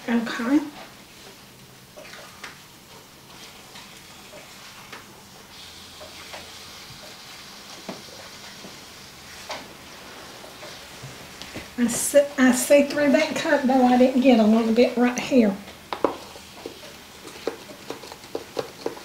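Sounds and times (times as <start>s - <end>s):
food sizzling in a frying pan: 5.4s - 11.3s, 15.9s - 18.5s.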